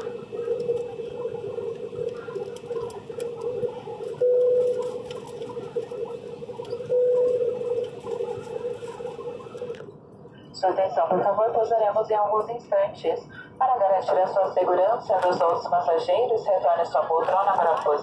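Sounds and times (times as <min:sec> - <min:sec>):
droning tone: 0:00.0 - 0:10.4
airplane cabin hum: 0:00.0 - 0:18.0.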